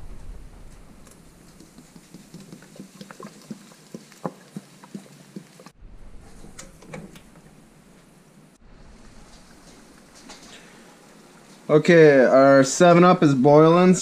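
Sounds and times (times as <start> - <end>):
carbonation fizzing: 1.1 - 5.8, 8.9 - 13.0.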